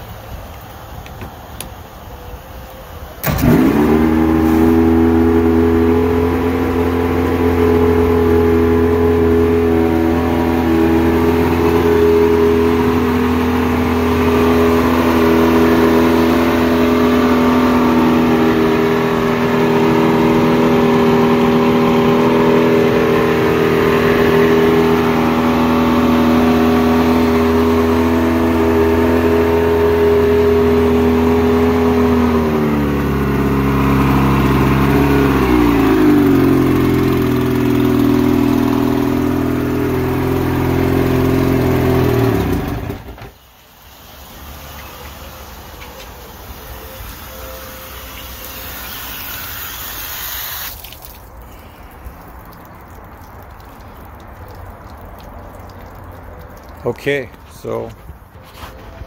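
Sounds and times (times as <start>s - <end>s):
outboard motor starting and running: 2.9s - 59.0s.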